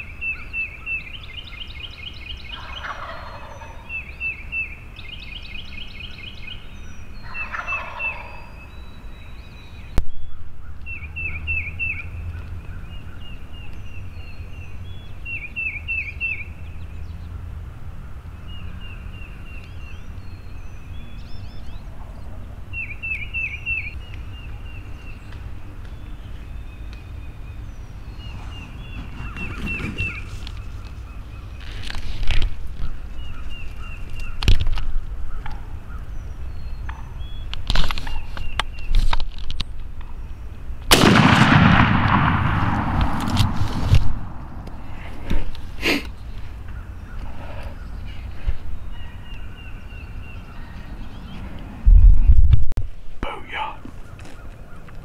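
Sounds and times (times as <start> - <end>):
songbird chirping: 0.0 - 55.0
turkey gobbling: 2.5 - 4.0, 7.2 - 8.5
shotgun shot: 40.9 - 44.4.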